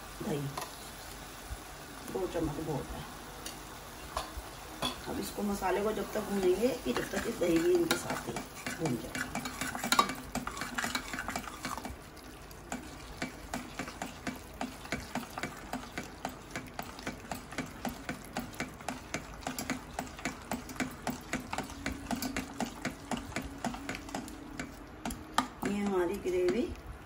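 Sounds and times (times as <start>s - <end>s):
ladle scraping a metal pan: 6.9s - 11.9s.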